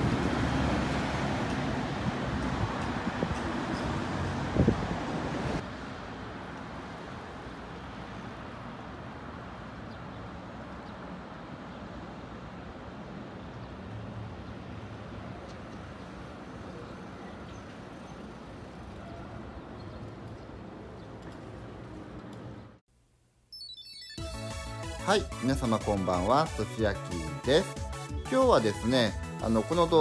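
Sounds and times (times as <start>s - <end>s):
road traffic rumble: 0.0s - 22.8s.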